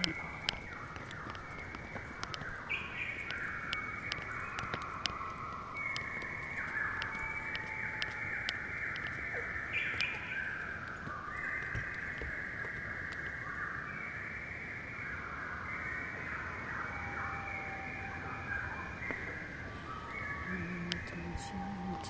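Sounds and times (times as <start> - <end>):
sharp ticks: 0.0 - 13.3
drawn-out animal calls: 0.0 - 13.4, 17.0 - 22.0.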